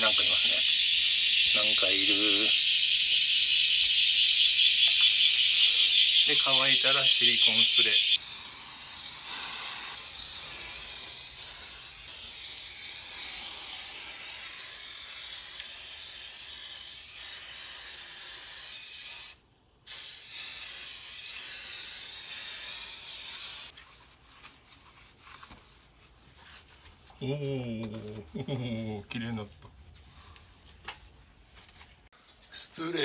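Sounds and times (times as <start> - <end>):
aerosol spray hissing: 0.0 - 23.7.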